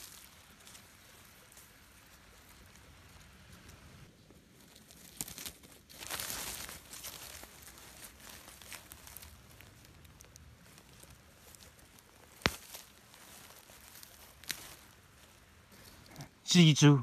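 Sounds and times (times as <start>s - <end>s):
hand scraping through dry leaves: 4.5s - 16.1s
twigs snapping: 4.6s - 16.2s.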